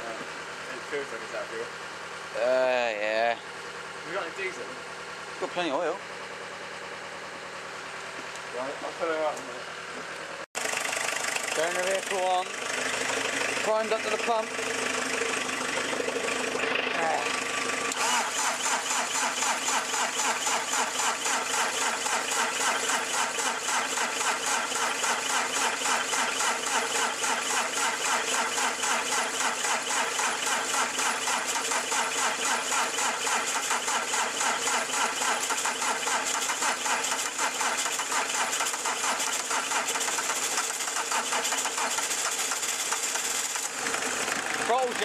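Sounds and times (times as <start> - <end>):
diesel engine clattering: 3.2 - 45.0.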